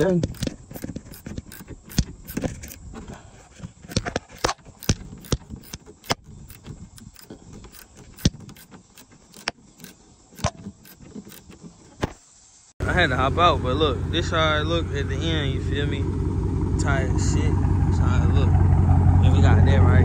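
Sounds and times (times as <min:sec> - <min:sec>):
small tools clicking and jingling: 0:00.0 - 0:03.1, 0:03.7 - 0:11.7.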